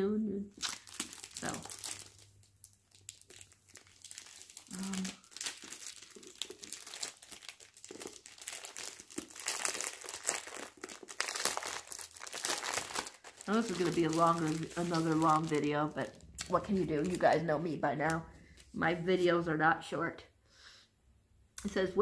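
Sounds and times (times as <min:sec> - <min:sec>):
packaging crinkling and rustling: 0:00.6 - 0:17.4.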